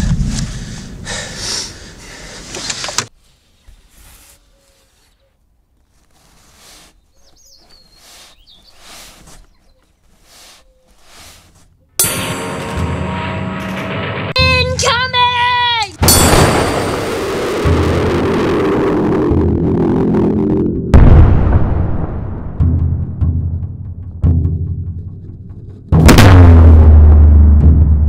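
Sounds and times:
soft rustles: 0:02.5 - 0:11.9
bird chirp: 0:06.9 - 0:11.0
battlefield noise: 0:12.6 - 0:22.4.

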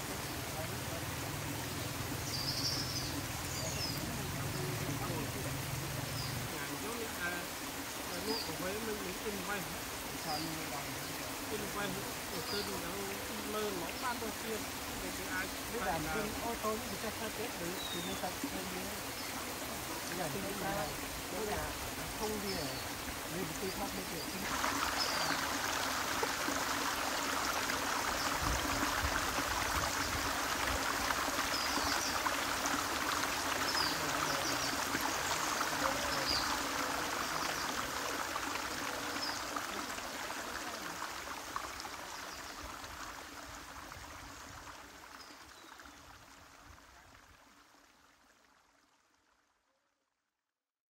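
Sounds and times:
stream running over rocks: 0:00.0 - 0:49.7.

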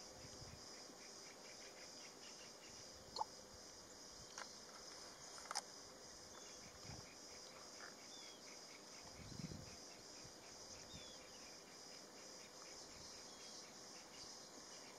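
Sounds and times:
insect chirring: 0:00.0 - 0:14.9.

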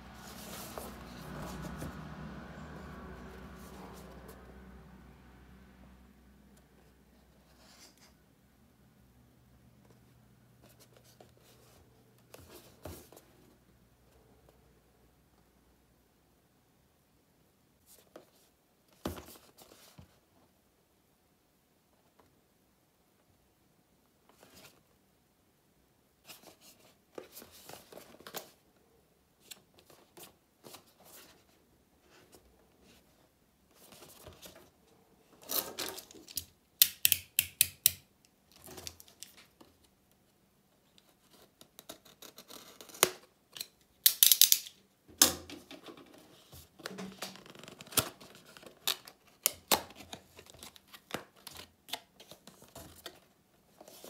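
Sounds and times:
cardboard box rustling: 0:00.1 - 0:02.1.

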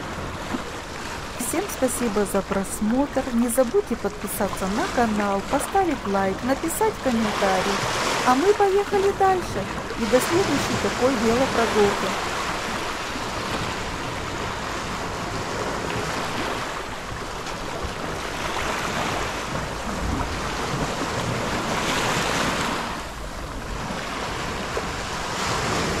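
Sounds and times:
waves washing over sand and pebbles: 0:00.0 - 0:26.0
wind rumble on microphone: 0:07.4 - 0:26.0.

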